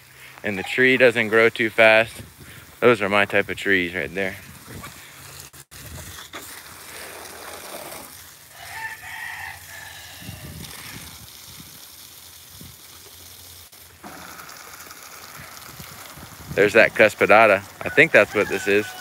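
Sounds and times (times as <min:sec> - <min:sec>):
water spraying from a hose: 0:00.0 - 0:19.0
rooster crowing: 0:08.5 - 0:10.6, 0:17.8 - 0:19.0.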